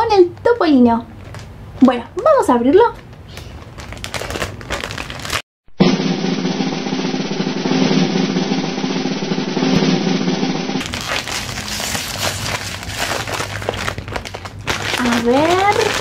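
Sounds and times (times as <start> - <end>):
plastic wrapper crinkling: 1.2 - 2.0, 2.8 - 5.4, 10.8 - 16.0
snare drum roll: 5.8 - 10.8.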